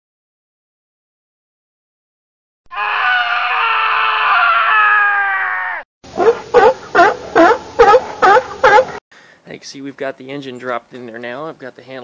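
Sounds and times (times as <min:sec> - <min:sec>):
long loud cry: 0:02.7 - 0:05.9.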